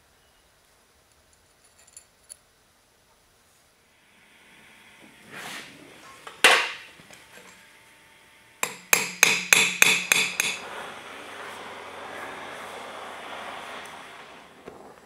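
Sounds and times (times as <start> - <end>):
steady hiss: 0.0 - 15.0
hammer ringing on anvil: 8.6 - 10.6.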